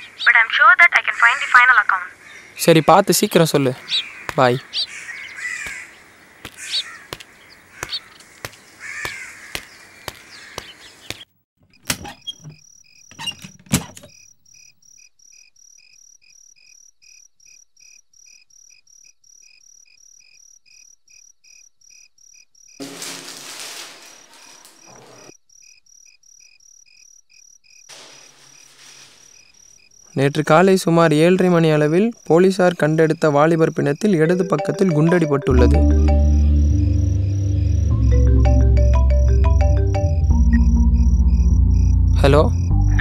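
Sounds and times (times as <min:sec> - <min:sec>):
birds chirping: 0:00.0 - 0:11.4, 0:28.1 - 0:38.7
crickets chirping: 0:02.1 - 0:11.2, 0:11.8 - 0:43.0
newspaper rustling: 0:05.4 - 0:11.2, 0:22.8 - 0:25.3, 0:27.9 - 0:29.6.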